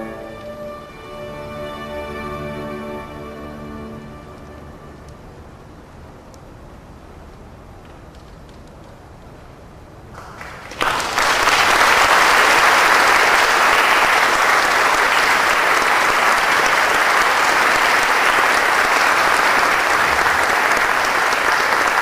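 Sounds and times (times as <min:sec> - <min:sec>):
audience applause: 0:10.2 - 0:22.0.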